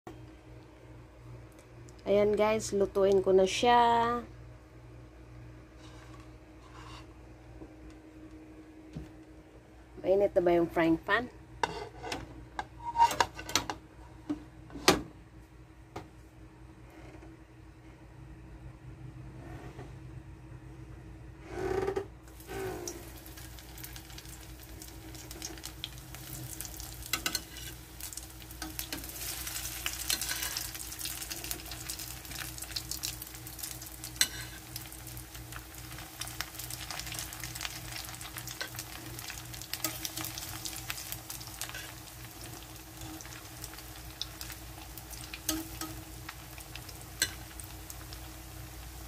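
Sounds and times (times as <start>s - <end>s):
steady low hum: 0.1s - 12.8s
food sizzling in hot oil: 22.3s - 49.0s.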